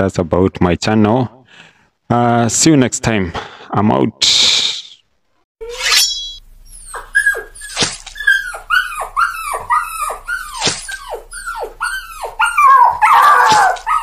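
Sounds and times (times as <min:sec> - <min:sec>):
dog yelping: 0:06.6 - 0:14.0.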